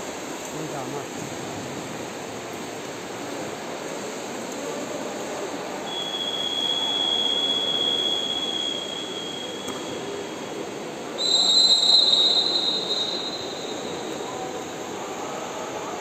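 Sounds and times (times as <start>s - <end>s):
long high whistles: 5.8s - 15.9s.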